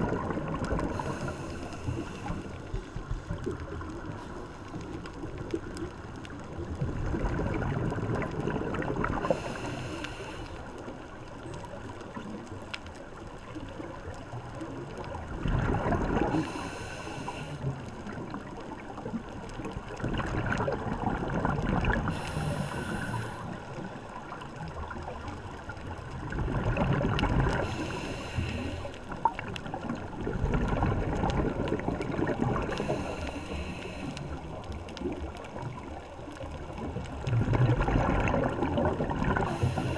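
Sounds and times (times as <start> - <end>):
regulator inhale hiss: 0.8 - 2.8, 9.2 - 10.9, 16.2 - 17.8, 22.1 - 23.8, 27.6 - 29.2, 32.6 - 34.7, 39.4 - 39.9
bubbling underwater exhalation: 15.4 - 16.4, 20.0 - 22.5, 26.3 - 27.6, 30.2 - 32.8, 37.2 - 39.9.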